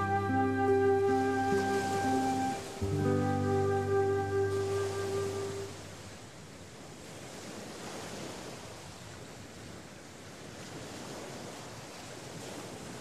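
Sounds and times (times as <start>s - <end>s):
sea surf rushing: 0.0s - 9.1s.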